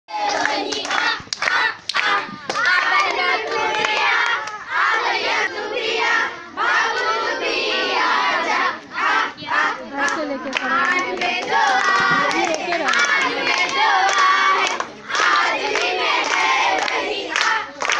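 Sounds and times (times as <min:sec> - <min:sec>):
girls chanting: 0:00.1 - 0:17.9
hand claps: 0:00.2 - 0:04.6, 0:10.1 - 0:17.9.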